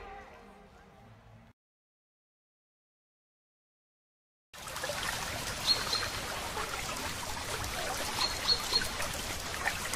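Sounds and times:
water trickling onto stones: 0:04.6 - 0:09.9.

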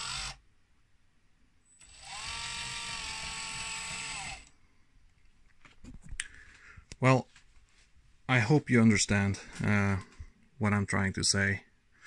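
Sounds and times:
small electric motor whine: 0:00.0 - 0:00.4, 0:01.8 - 0:04.5.

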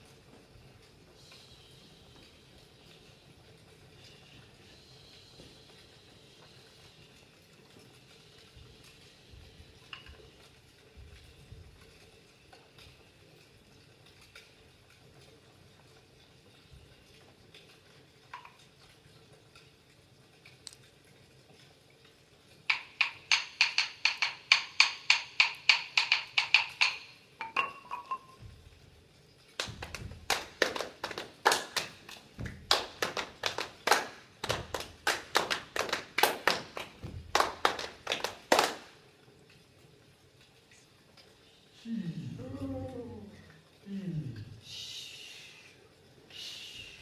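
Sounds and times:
sharp ringing percussion taps: 0:22.7 - 0:28.6
heavy hand percussion strikes: 0:29.6 - 0:31.2.

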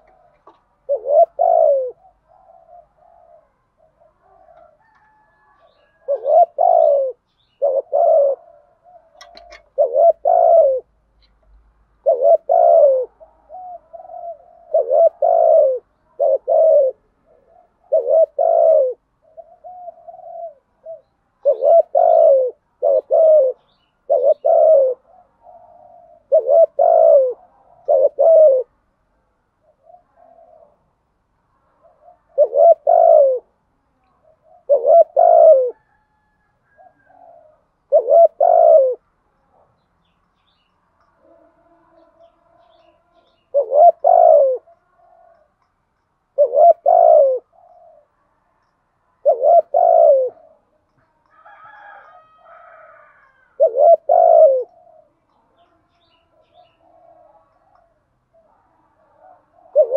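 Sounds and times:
dove cooing: 0:00.0 - 0:28.9, 0:29.6 - 0:39.8, 0:41.2 - 0:45.6, 0:46.3 - 0:48.3, 0:49.2 - 0:59.9.

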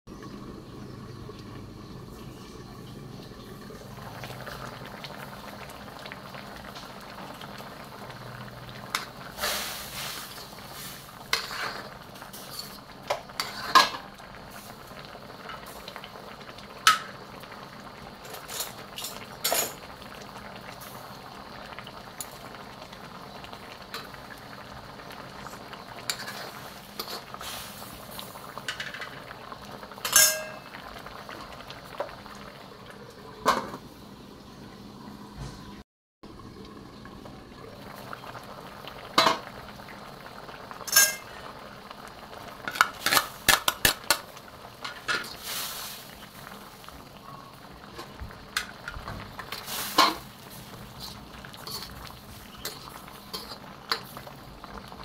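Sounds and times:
curry bubbling in a wok: 0:00.1 - 0:34.9, 0:36.3 - 0:55.0
metal lid clanking onto wok: 0:30.0 - 0:30.7.

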